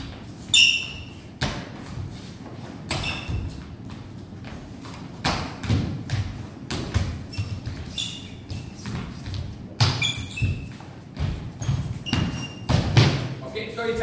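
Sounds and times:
shoe soles squeaking: 0.2s - 1.4s, 2.1s - 3.9s, 6.6s - 13.0s
footsteps on hard floor: 5.7s - 13.0s.

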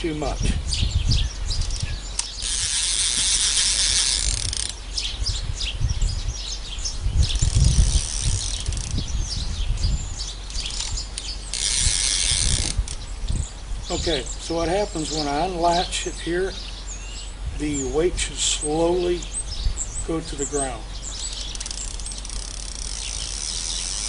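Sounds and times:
birds chirping: 0.0s - 24.0s
fishing reel spool whirring: 1.6s - 5.0s, 7.4s - 9.1s, 10.4s - 13.0s, 21.2s - 24.0s.

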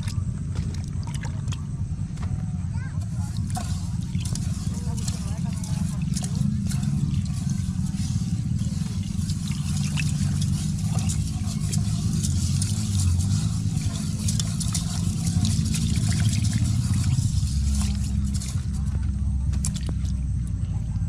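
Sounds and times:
low rumble: 0.0s - 21.0s
rice swished in water: 3.2s - 19.0s.

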